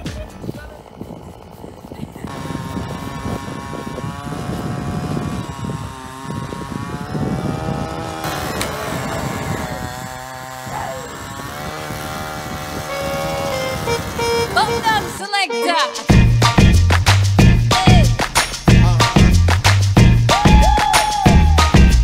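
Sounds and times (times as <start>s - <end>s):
small gas engine running: 0.0s - 15.4s.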